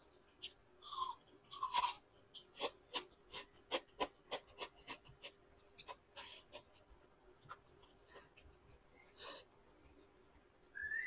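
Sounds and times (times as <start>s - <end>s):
chewing with wet mouth clicks: 1.8s - 6.8s.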